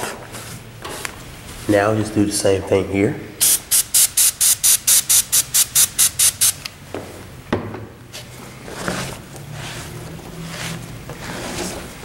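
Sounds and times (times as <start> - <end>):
aerosol spray bursts: 3.4 - 6.6
cloth rubbing on surface: 8.1 - 12.0.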